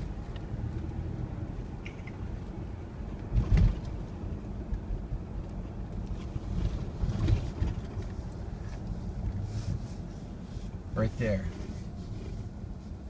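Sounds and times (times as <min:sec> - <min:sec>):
engine and road noise rumble: 0:00.0 - 0:13.0
car thumps: 0:03.3 - 0:04.0.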